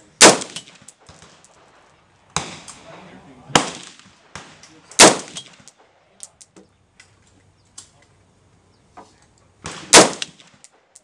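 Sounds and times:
rifle shot report: 0:02.4 - 0:05.7.

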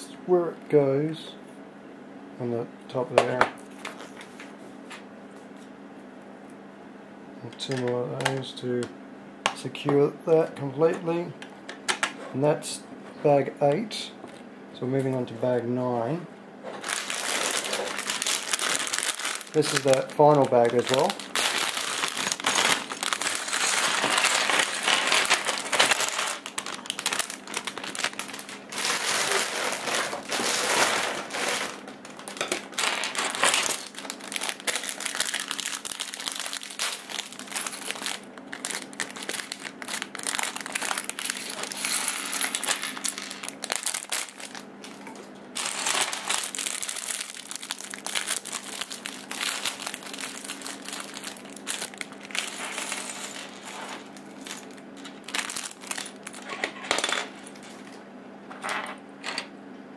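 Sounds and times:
plastic bricks clattering: 0:16.8 - 0:44.6
plastic bag crinkling: 0:16.8 - 0:56.6.

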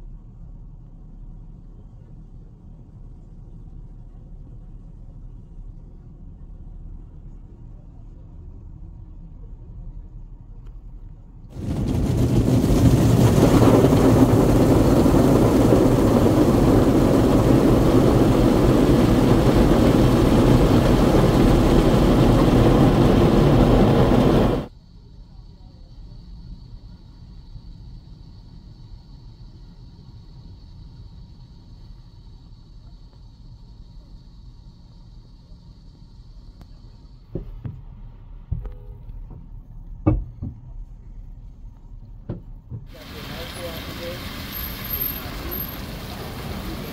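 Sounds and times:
low steady rumble: 0:00.0 - 0:46.9
water stream hitting car roof: 0:11.5 - 0:24.7, 0:43.0 - 0:46.9.

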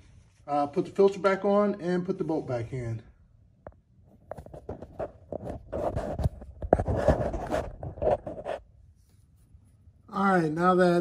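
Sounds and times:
person crawling on concrete floor: 0:03.6 - 0:09.9.

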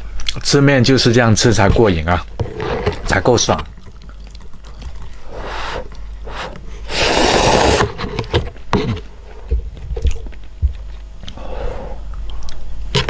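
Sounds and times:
chewing: 0:03.6 - 0:06.2
slurping noodles: 0:04.7 - 0:08.1.

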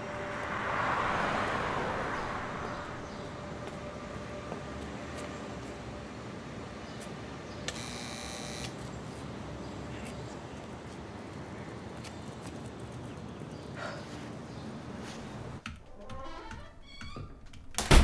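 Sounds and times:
street traffic hum: 0:00.0 - 0:15.7
electric door buzzer: 0:07.7 - 0:08.8.

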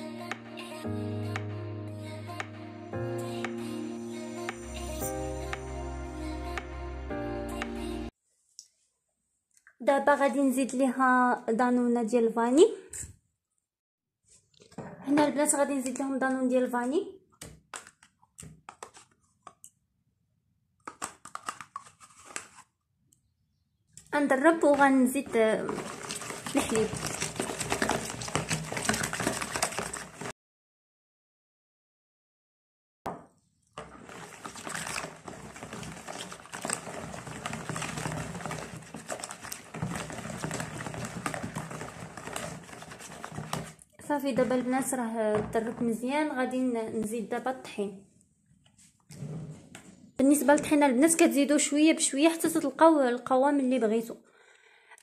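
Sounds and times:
plastic cup clicks: 0:20.8 - 0:21.9
metal spoon scraping plastic bowl: 0:24.0 - 0:30.3, 0:33.8 - 0:45.0.

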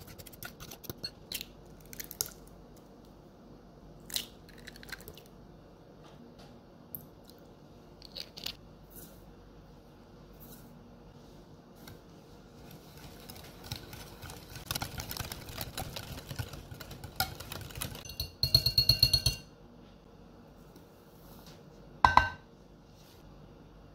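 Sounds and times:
whisk swishing through batter: 0:00.0 - 0:01.0, 0:11.8 - 0:18.0
whisk clinking against glass bowl: 0:17.2 - 0:19.5.

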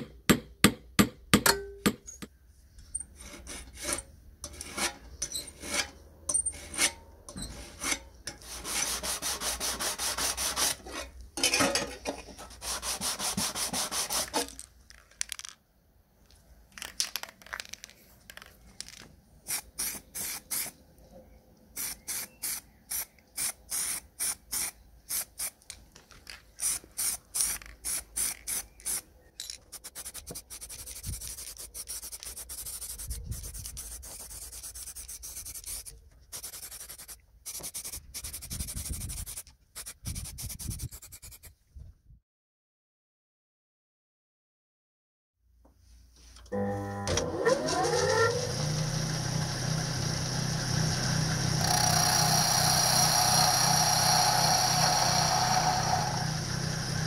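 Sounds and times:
hand file rasping on sheet metal: 0:03.2 - 0:11.2, 0:12.4 - 0:14.5
aerosol spray can hissing: 0:19.5 - 0:20.8, 0:21.8 - 0:25.6, 0:26.6 - 0:29.0.

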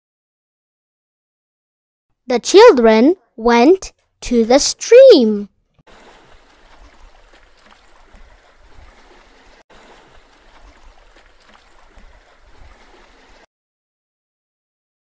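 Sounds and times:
babbling stream water: 0:02.4 - 0:13.5.

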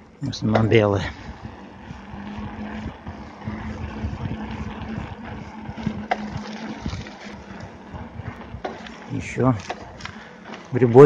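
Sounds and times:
steady low hum: 0:00.0 - 0:11.0
wind buffeting microphone: 0:00.3 - 0:10.2.

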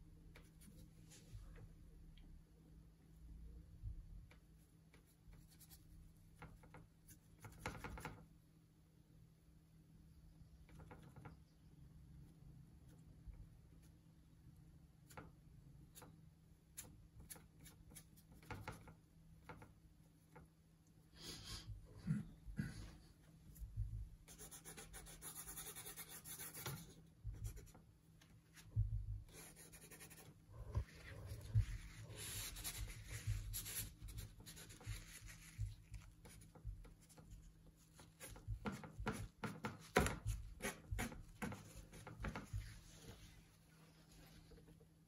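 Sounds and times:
paintbrush scrubbing and dabbing: 0:23.5 - 0:44.8.

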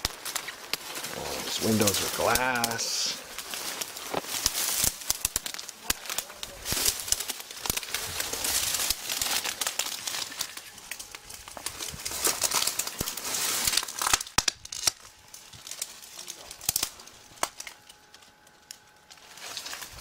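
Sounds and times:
brush crackling and rustling: 0:00.0 - 0:20.0
sharp twig snaps: 0:03.8 - 0:08.0, 0:08.9 - 0:17.8.

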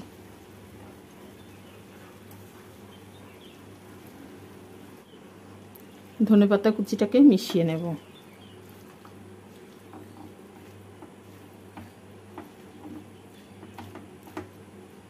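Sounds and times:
spatula stirring thick curry: 0:07.4 - 0:15.0.

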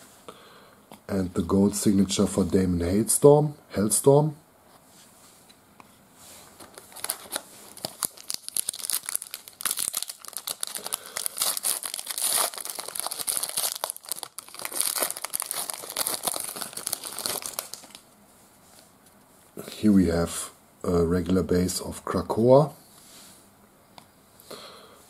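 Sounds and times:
foil wrapper tearing and crinkling: 0:06.7 - 0:18.0.

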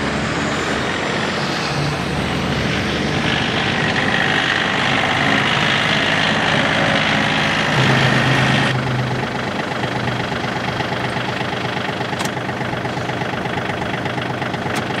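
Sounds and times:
diesel engine idling: 0:00.0 - 0:15.0
sharp click: 0:12.2 - 0:12.4.

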